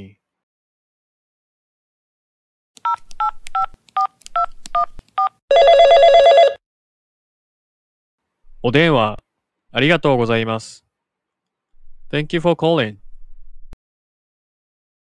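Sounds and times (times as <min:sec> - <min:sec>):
warbling telephone ring: 0:05.5 - 0:06.6.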